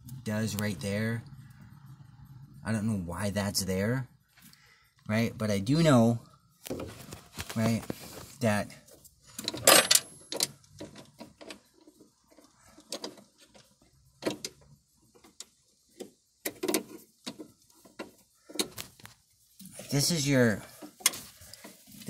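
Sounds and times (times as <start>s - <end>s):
throttle linkage clicks and rattles: 9.3s - 19.0s.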